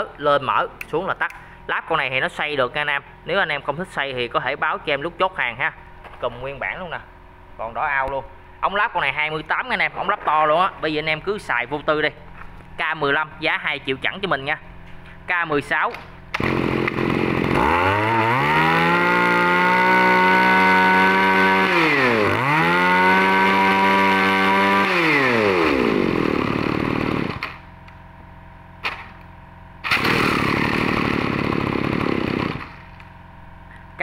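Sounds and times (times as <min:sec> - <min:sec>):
brush cutter engine revving: 0:16.3 - 0:27.7, 0:29.8 - 0:33.1.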